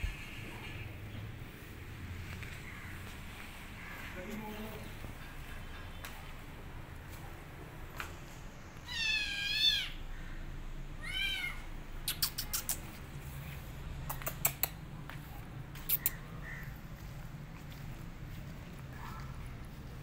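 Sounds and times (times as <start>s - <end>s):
kitten meowing: 8.8s - 10.0s
sharp clicks: 14.1s - 14.8s.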